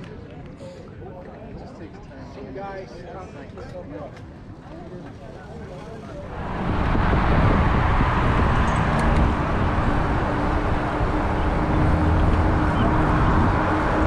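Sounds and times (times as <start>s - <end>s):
road noise: 5.9s - 14.0s
wind rushing on microphone: 6.2s - 14.0s.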